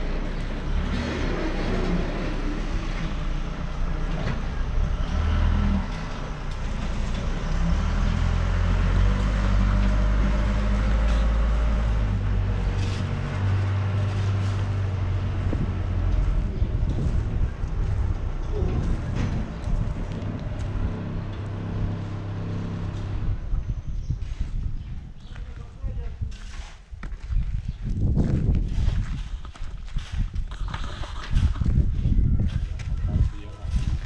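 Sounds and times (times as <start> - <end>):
diesel engine rumbling: 0.0 - 25.2.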